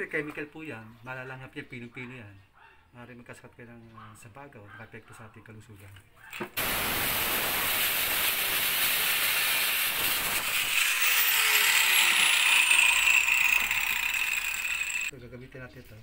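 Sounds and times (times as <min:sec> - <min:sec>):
angle grinder cutting plastic pipe: 0:06.4 - 0:15.1.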